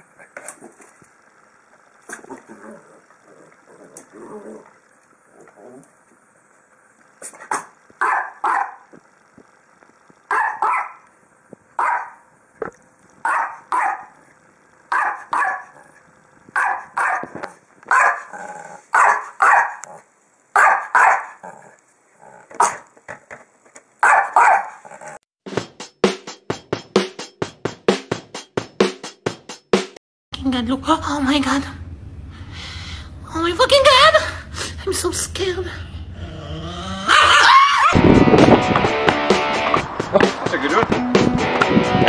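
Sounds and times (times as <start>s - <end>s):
small dog barking: 7.5s - 8.9s, 10.3s - 11.0s, 11.8s - 12.2s, 13.2s - 14.2s, 14.9s - 15.9s, 16.6s - 18.3s, 18.9s - 19.9s, 20.5s - 21.4s, 22.6s - 22.8s, 24.0s - 24.8s.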